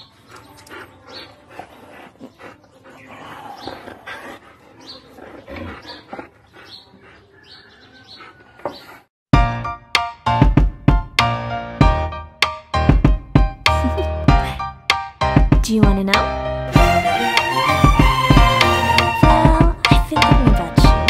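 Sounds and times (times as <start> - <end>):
dogs yipping and whining: 0.0 - 9.1.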